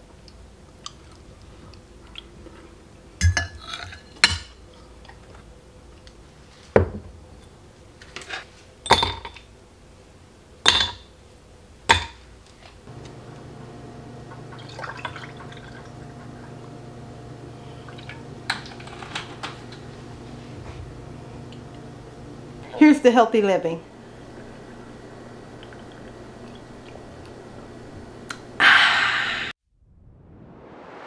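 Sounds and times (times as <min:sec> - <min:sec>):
drink pouring over ice: 0:14.4 - 0:16.3.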